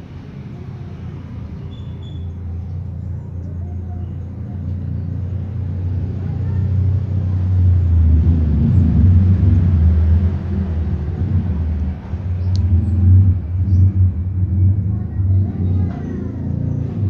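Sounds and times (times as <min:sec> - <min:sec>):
engine rumbling: 0:00.0 - 0:17.0
high squeak: 0:01.6 - 0:02.4.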